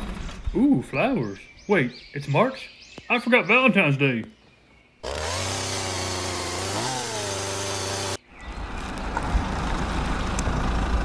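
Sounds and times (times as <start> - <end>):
rough rumbling engine: 0.0 - 0.9, 5.0 - 11.0
engine idling and revving: 5.0 - 8.2, 8.8 - 11.0.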